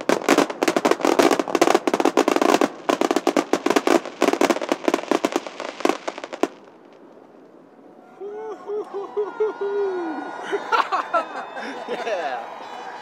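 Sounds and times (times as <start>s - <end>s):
fireworks bursting and crackling: 0.0s - 7.6s.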